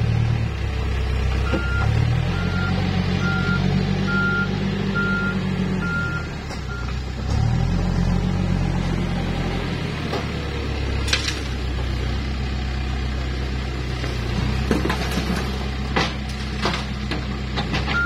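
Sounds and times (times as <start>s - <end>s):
diesel engine running under load: 0.0s - 18.0s
reversing alarm beeping: 1.4s - 6.9s.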